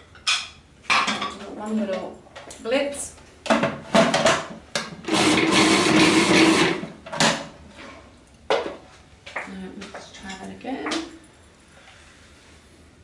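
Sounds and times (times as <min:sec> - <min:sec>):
food processor running: 0:05.0 - 0:07.0.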